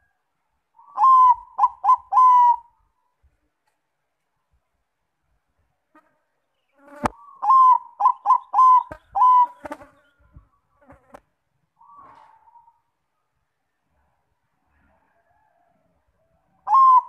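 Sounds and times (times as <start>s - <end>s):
dove cooing: 0.8s - 2.8s, 7.0s - 9.8s, 11.8s - 12.9s, 16.6s - 17.0s.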